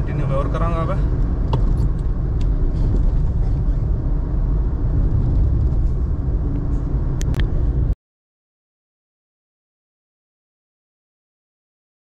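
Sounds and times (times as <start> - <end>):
car rumble from inside cabin: 0.0 - 8.0.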